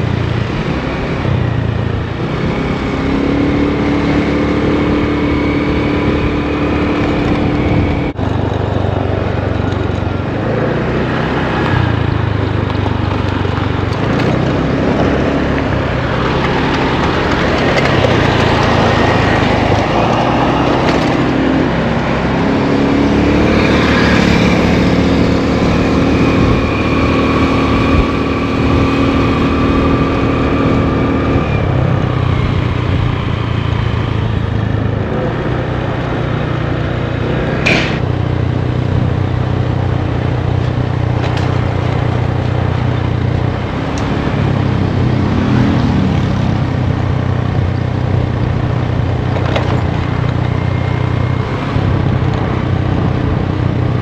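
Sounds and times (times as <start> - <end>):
motor scooter engine running: 0.0 - 54.0
sharp click: 37.6 - 38.1.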